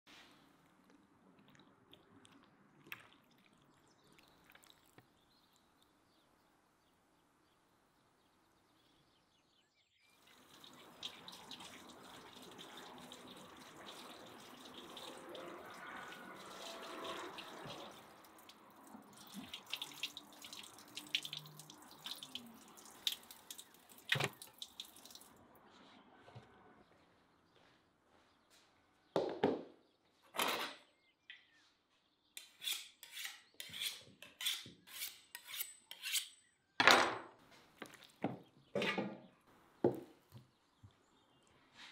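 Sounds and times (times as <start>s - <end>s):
water running from tap: 10.2s - 25.4s
splashing and wet meat handling: 10.4s - 25.4s.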